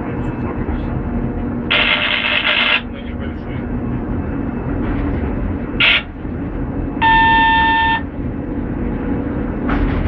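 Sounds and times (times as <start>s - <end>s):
locomotive engine rumble: 0.0s - 10.0s
loud steady beep tone: 5.8s - 6.1s, 7.0s - 8.1s.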